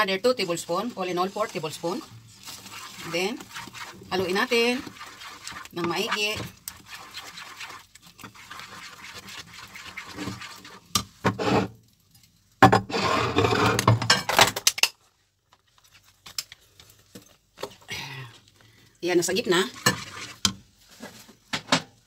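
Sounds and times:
spoon stirring thick sauce: 0.4 - 11.7, 19.3 - 20.7.

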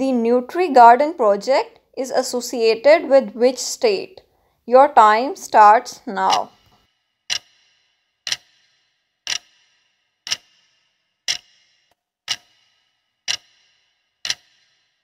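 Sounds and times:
clock ticking with bright ring: 6.1 - 15.0.

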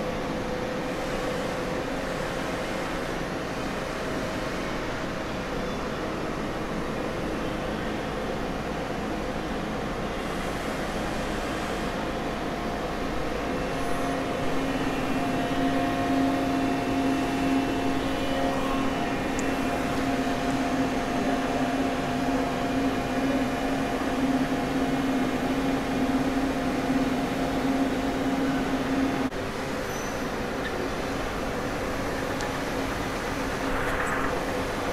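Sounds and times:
lathe hydraulic pump humming: 10.2 - 34.9.

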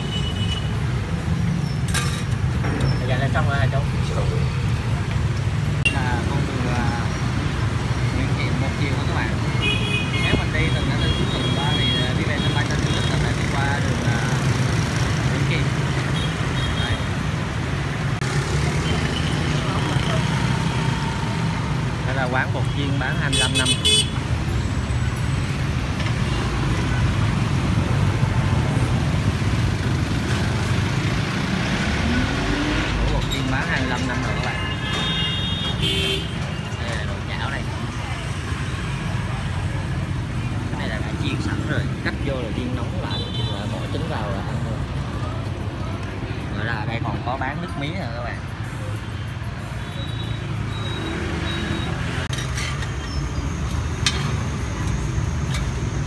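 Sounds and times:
low engine rumble of traffic: 0.0 - 56.0
motorbikes running: 0.7 - 23.2, 24.2 - 56.0.

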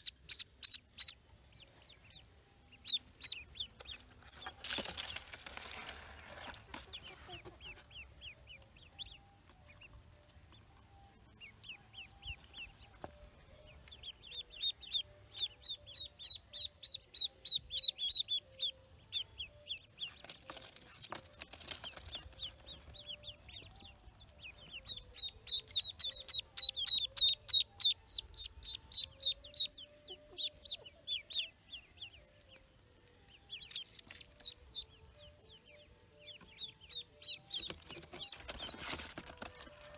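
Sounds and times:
ducklings peeping: 0.0 - 39.9
rustling: 3.8 - 7.6, 37.7 - 39.9.

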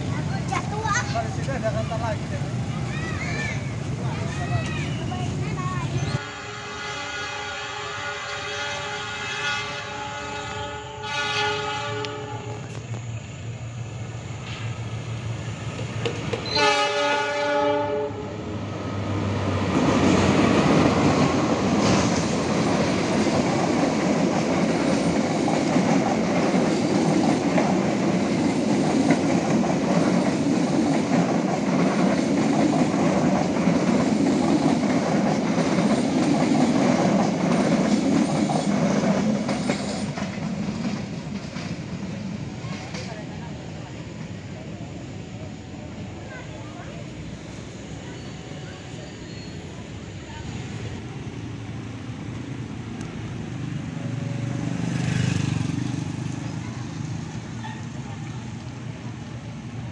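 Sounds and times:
train rumbling past: 0.0 - 59.9
locomotive horn blast: 6.2 - 12.7, 16.4 - 18.4.

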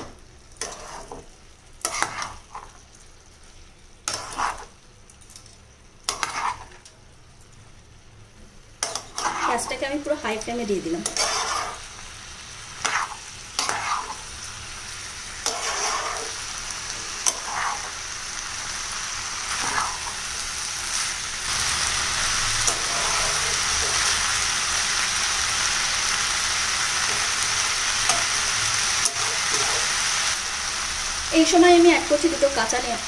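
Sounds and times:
rice sizzling in oil: 0.0 - 33.0
spatula scraping a pan: 0.6 - 2.8, 4.0 - 4.8, 6.1 - 6.8, 8.8 - 9.8, 11.0 - 11.9, 12.7 - 14.3, 15.4 - 18.0, 19.5 - 20.2, 22.6 - 24.2.

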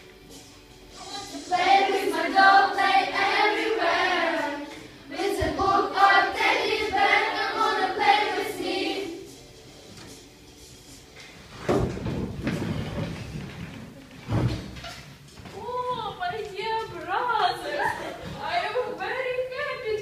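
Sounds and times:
group singing children's song: 0.9 - 9.4.

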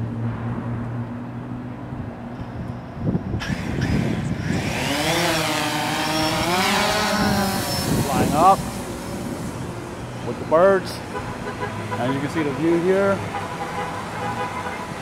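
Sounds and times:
drone motors whining: 3.4 - 10.3.

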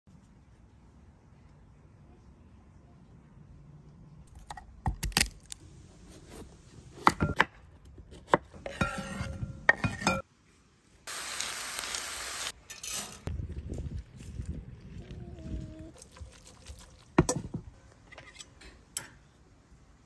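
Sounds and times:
vegetables sizzling in pan: 11.1 - 12.6.

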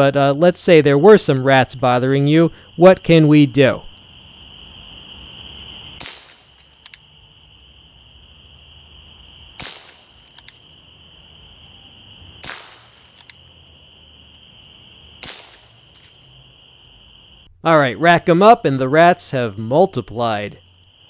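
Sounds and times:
pellet pistol shots: 6.0 - 6.9, 9.6 - 10.6, 12.4 - 13.3, 15.2 - 16.1
faint clicks: 6.6 - 7.0, 13.1 - 13.4.

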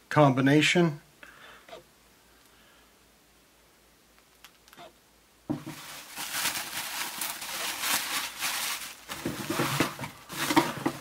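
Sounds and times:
packing paper rustling: 5.5 - 11.0.

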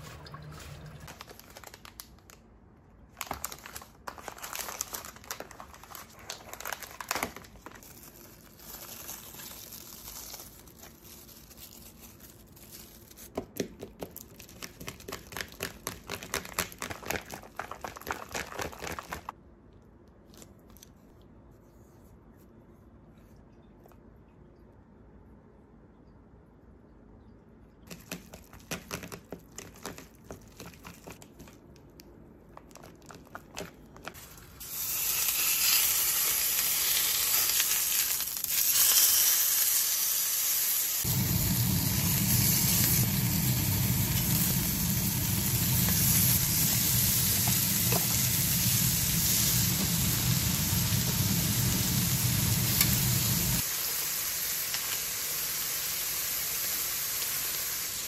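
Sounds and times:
meat sizzling in a frying pan: 34.6 - 58.0.

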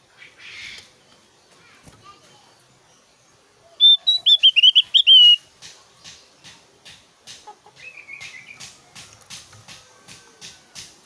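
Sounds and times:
bird twittering softly: 2.4 - 5.5
bird whistling sharp notes: 3.8 - 5.4.

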